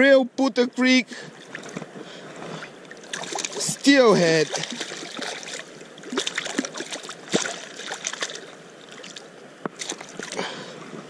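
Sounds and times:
creek water running: 0.7s - 11.0s
fish splashing in water: 2.9s - 3.8s, 4.4s - 10.6s.

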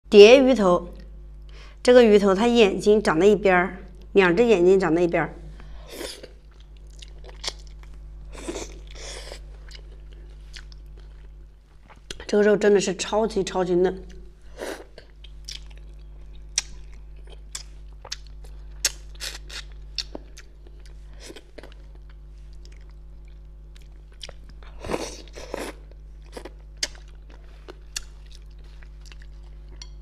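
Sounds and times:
person chewing wetly: 6.1s - 12.3s, 14.8s - 30.0s.

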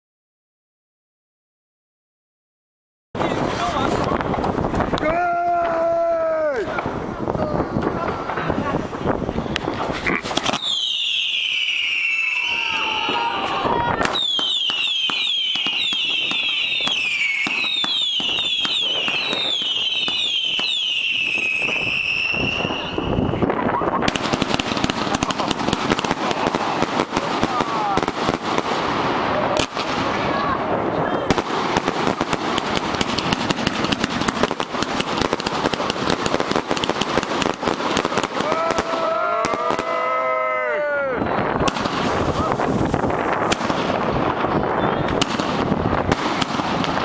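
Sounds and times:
sharp firework pops: 9.5s - 11.6s, 13.9s - 21.9s, 24.0s - 30.2s, 31.3s - 39.9s, 41.6s - 47.0s
firework whistles falling in pitch: 10.4s - 23.8s.

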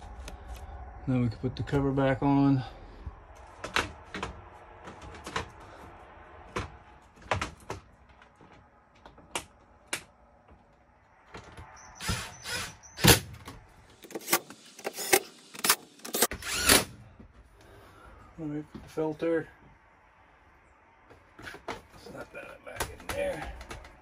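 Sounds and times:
cordless drill whirring: 12.0s - 13.1s, 16.1s - 16.9s.

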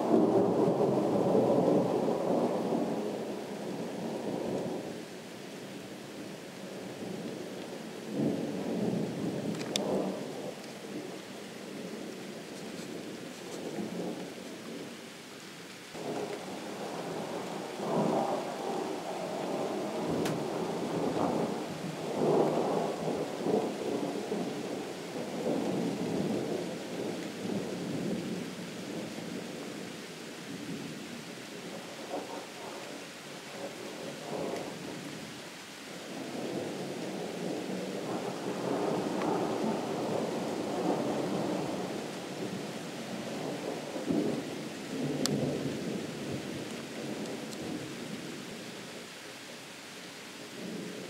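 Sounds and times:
sharp tick: 9.6s - 9.9s
distant thunder rumbling: 16.0s - 29.4s, 36.1s - 48.4s.

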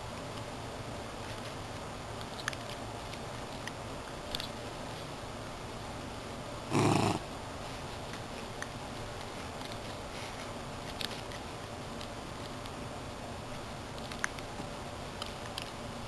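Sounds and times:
dog gnawing plush toy: 6.7s - 7.3s.

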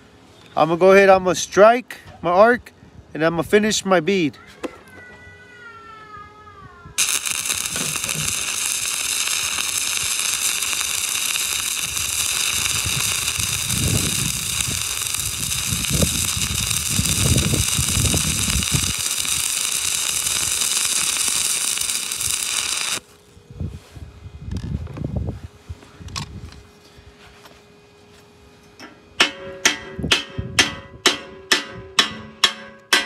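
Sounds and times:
welding arc crackling and popping: 7.0s - 23.1s.

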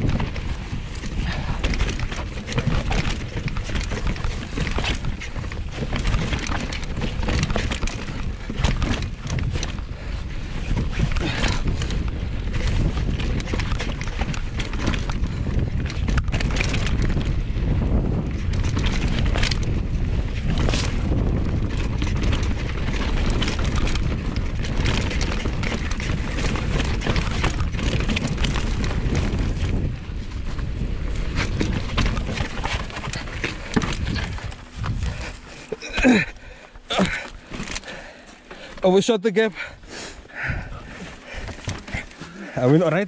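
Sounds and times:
wind on microphone: 0.0s - 38.1s, 39.7s - 43.0s
bike clattering and knocking: 0.0s - 38.8s, 40.3s - 43.0s
bike tyres rolling over dirt: 0.0s - 43.0s.

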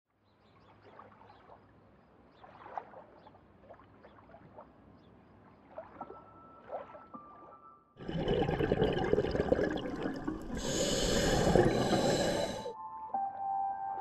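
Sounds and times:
water bubbling and gurgling: 5.5s - 12.7s.

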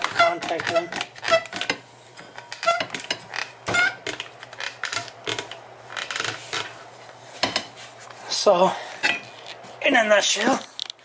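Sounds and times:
rubber creaks: 0.0s - 1.8s, 2.5s - 6.7s.

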